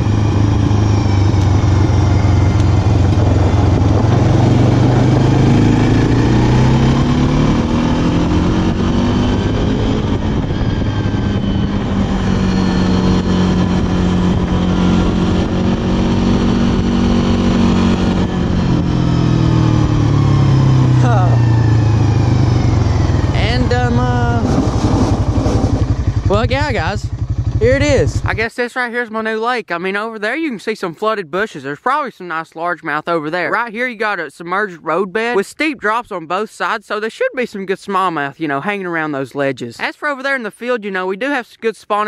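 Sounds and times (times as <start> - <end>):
atv engine running: 0.0 - 28.5.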